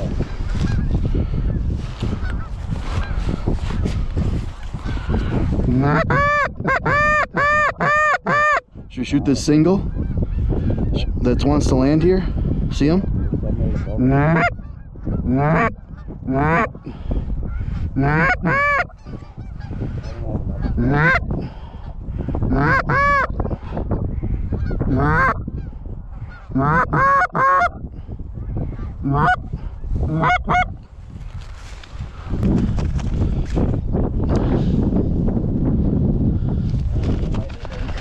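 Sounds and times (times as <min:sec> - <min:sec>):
goose honking: 0:05.8 - 0:08.6, 0:14.2 - 0:14.6, 0:15.3 - 0:16.7, 0:18.0 - 0:19.6, 0:20.7 - 0:21.2, 0:22.5 - 0:23.3, 0:24.9 - 0:25.4, 0:26.5 - 0:27.7, 0:29.1 - 0:29.4, 0:30.2 - 0:30.8.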